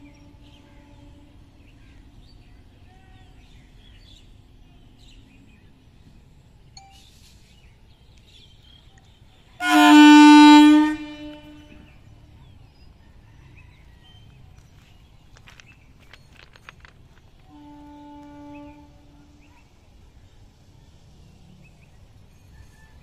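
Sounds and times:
train air horn blast: 0:00.0 - 0:01.7, 0:09.6 - 0:12.0, 0:17.4 - 0:19.7.

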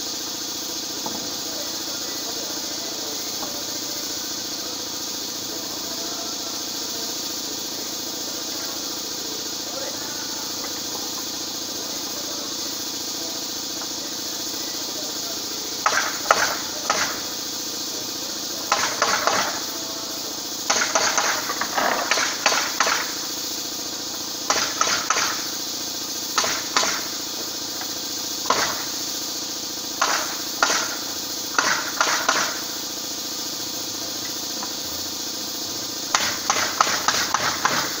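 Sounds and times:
steady hum: 0:00.0 - 0:38.0
nail gun shots into wood: 0:15.8 - 0:17.2, 0:18.7 - 0:19.5, 0:20.7 - 0:23.1, 0:24.5 - 0:25.4, 0:26.4 - 0:27.1, 0:28.4 - 0:28.9, 0:30.0 - 0:32.6, 0:36.1 - 0:38.0.

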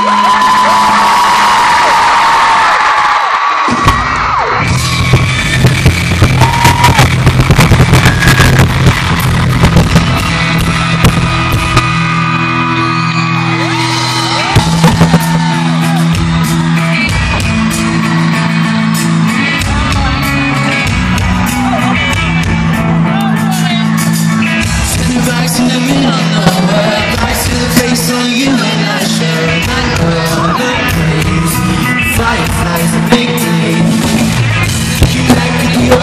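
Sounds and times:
drums: 0:00.0 - 0:36.0
bass guitar: 0:03.6 - 0:36.0
electric guitar: 0:03.8 - 0:36.0
person singing: 0:24.8 - 0:36.0.

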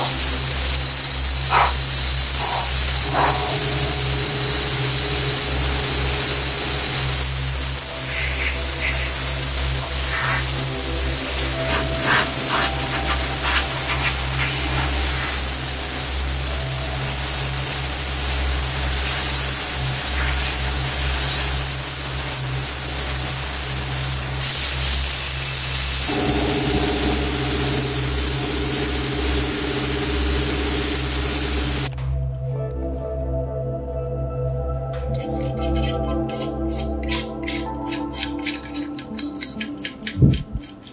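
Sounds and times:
spray gun hissing: 0:00.0 - 0:31.9
low steady hum: 0:25.9 - 0:35.4.

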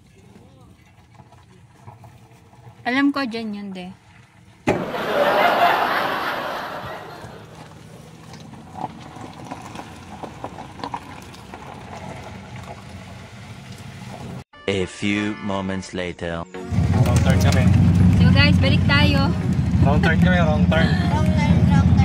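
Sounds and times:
low vehicle hum: 0:00.2 - 0:14.4, 0:16.7 - 0:22.0
rush of road noise: 0:16.7 - 0:22.0.

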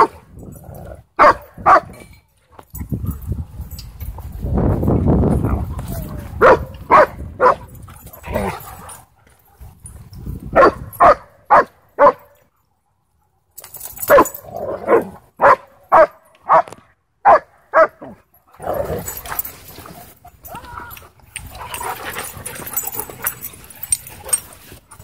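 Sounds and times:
dog barking: 0:01.2 - 0:02.0, 0:06.4 - 0:07.7, 0:10.6 - 0:12.4, 0:14.9 - 0:18.2.

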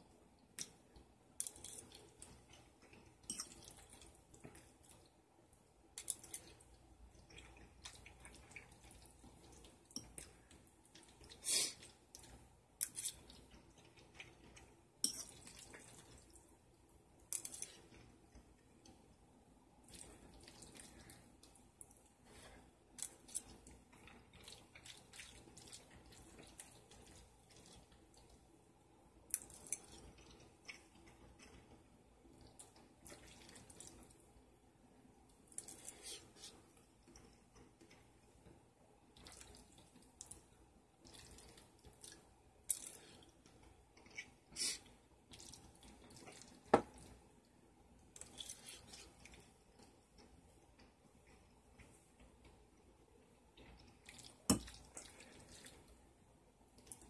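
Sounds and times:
wet chewing: 0:06.0 - 0:16.4, 0:23.0 - 0:28.4, 0:39.2 - 0:47.2, 0:48.1 - 0:52.5, 0:53.6 - 0:56.0.

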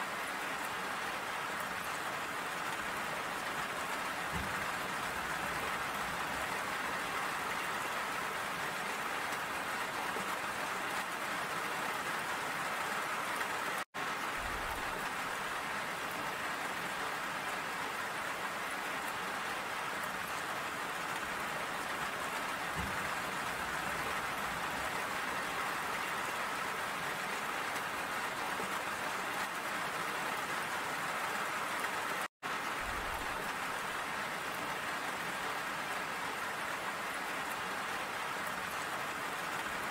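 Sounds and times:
rain pattering: 0:00.0 - 0:39.9.

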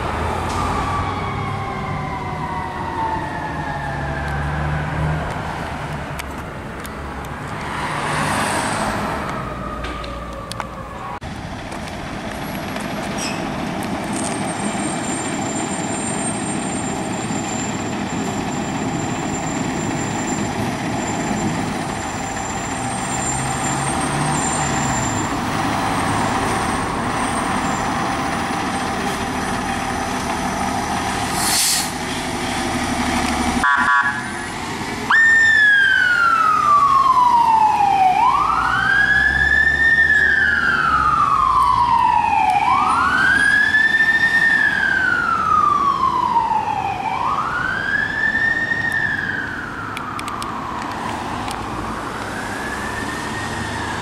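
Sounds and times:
emergency siren wailing: 0:00.0 - 0:05.8, 0:07.8 - 0:11.2, 0:15.5 - 0:31.0, 0:33.5 - 0:54.0
street traffic rumble: 0:00.0 - 0:54.0.

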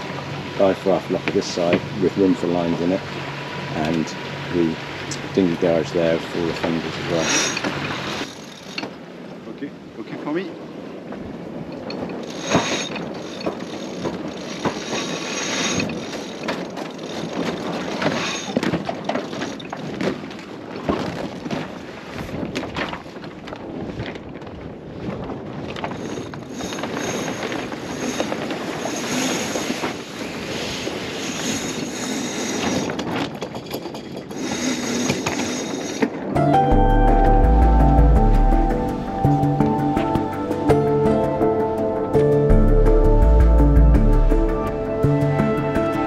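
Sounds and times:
hull rushing through water: 0:00.0 - 0:33.5
wind buffeting microphone: 0:00.0 - 0:46.0
music: 0:36.4 - 0:46.0.

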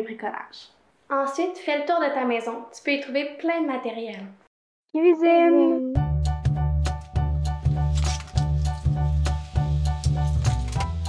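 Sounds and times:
upbeat background music: 0:05.6 - 0:11.0.

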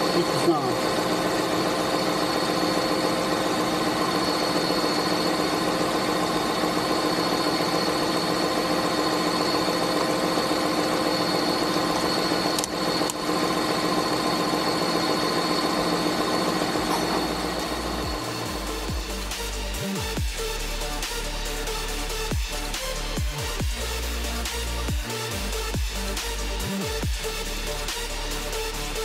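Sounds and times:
car engine idling: 0:00.0 - 0:29.0
steady whine: 0:00.0 - 0:29.0.

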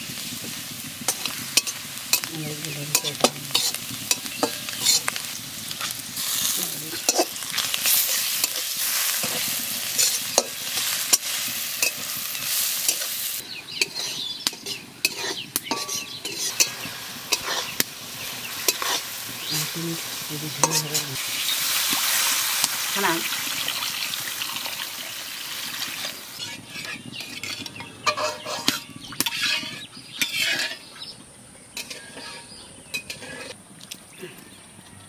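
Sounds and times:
onions sizzling in a wok: 0:00.0 - 0:33.6
metal spatula scraping: 0:01.0 - 0:21.2, 0:25.8 - 0:31.1, 0:31.7 - 0:33.6.

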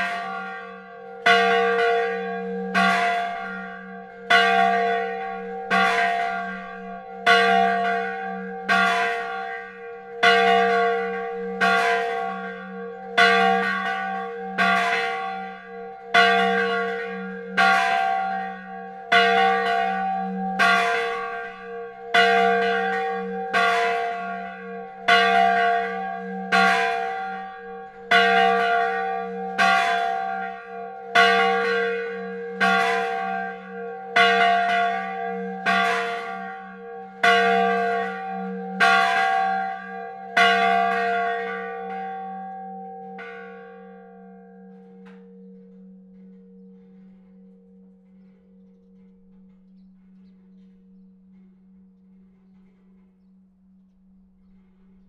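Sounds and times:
church bell ringing: 0:00.0 - 0:55.0.

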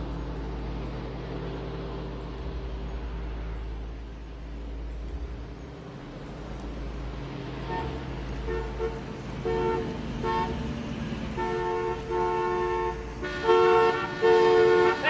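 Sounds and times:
low traffic rumble: 0:00.0 - 0:15.0
car horns honking: 0:07.4 - 0:15.0.

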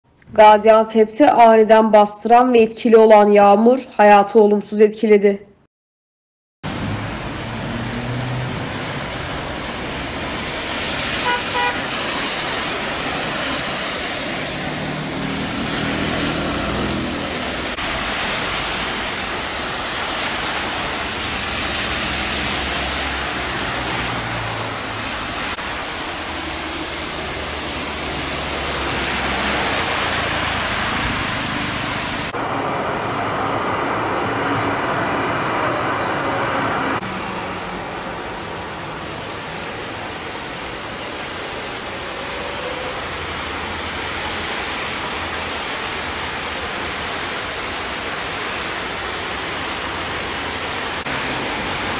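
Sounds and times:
tyres hissing on wet road: 0:06.7 - 0:51.9
car horn toot: 0:11.2 - 0:11.8.

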